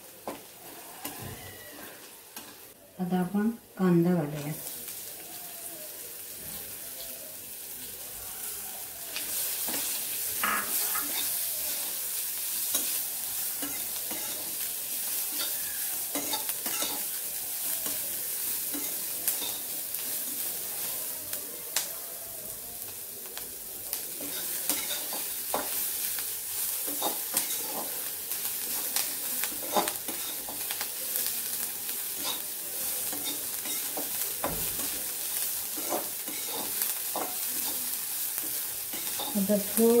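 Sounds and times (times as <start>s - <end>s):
onions sizzling in hot oil: 0.0s - 40.0s
metal spatula scraping a pan: 9.3s - 17.2s, 24.2s - 26.1s, 35.6s - 37.9s.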